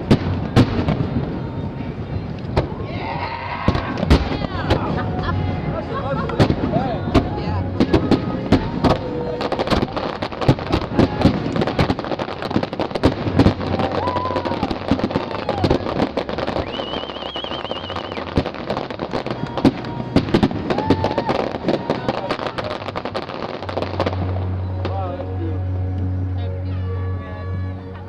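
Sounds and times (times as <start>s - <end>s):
sharp firework bangs: 0.0s - 1.6s, 3.6s - 5.2s, 6.2s - 25.0s
fireworks crackling and popping: 0.0s - 26.1s
warbling high whistle: 16.4s - 18.4s.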